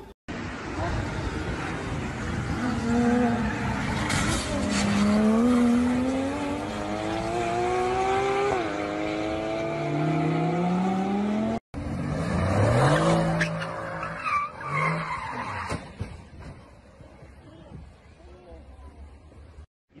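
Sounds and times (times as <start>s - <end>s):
tyres skidding: 0.3s - 18.2s
car engine revving: 1.4s - 15.0s.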